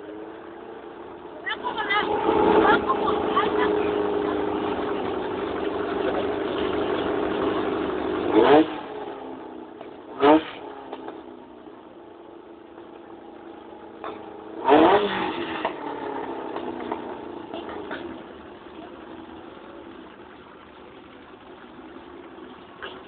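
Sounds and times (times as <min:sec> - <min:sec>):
engine revving: 0:00.0 - 0:11.5, 0:13.8 - 0:19.4
car engine idling: 0:00.0 - 0:23.0.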